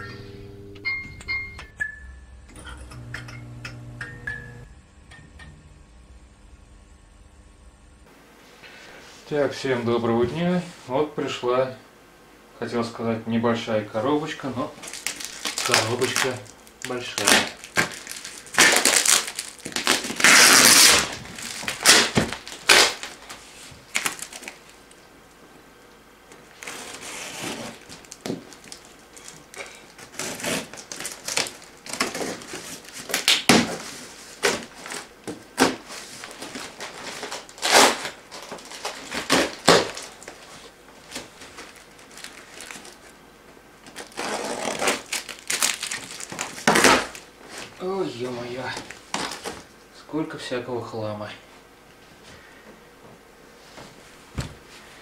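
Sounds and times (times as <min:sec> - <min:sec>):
packing tape tearing: 0:14.8 - 0:25.1, 0:26.5 - 0:43.2, 0:43.8 - 0:47.7, 0:48.8 - 0:49.6
cardboard scraping and crinkling: 0:26.5 - 0:29.4, 0:30.0 - 0:43.1, 0:43.9 - 0:49.6.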